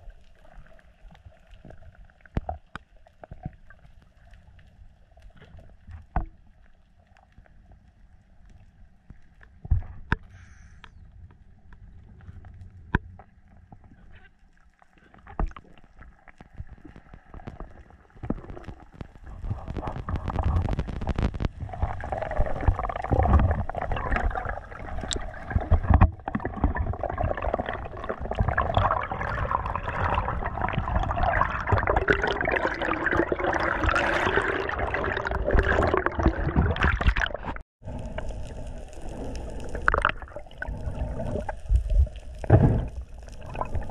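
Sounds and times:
water rushing and gurgling: 16.0 - 43.9.

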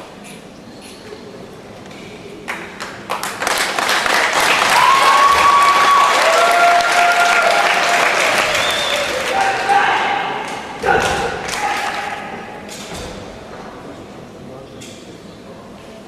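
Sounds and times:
crowd applauding: 2.5 - 12.3.

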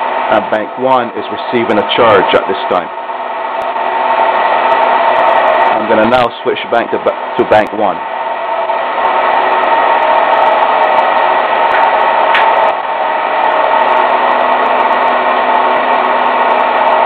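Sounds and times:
electric motor running: 8.0 - 17.0.

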